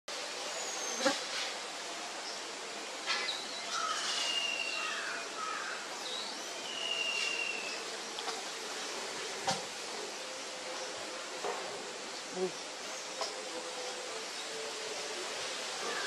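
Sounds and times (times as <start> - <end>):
steady background hiss: 0.1 - 16.0
birds whistling: 6.4 - 7.8.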